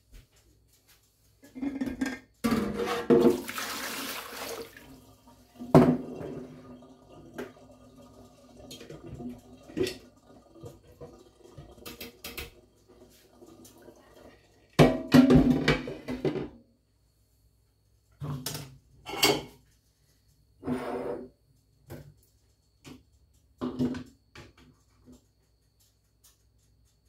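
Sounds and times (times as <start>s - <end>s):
kitchenware clattering: 1.4s - 3.6s, 18.3s - 19.6s
tap water running: 3.0s - 14.8s.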